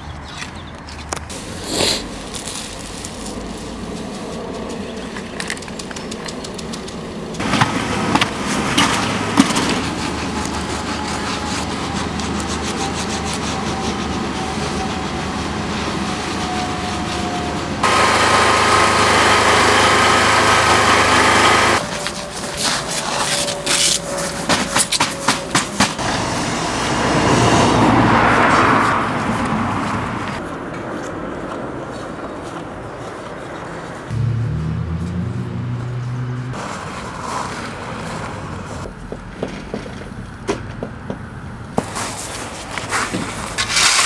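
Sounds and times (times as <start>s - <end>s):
steady hum: 17.8s - 21.8s
machine running: 17.8s - 22.4s.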